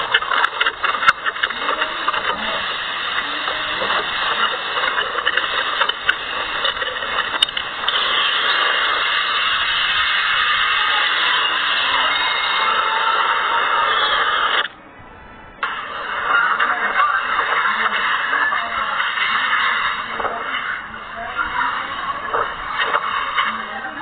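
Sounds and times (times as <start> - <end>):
driving rain: 0.0 - 14.8.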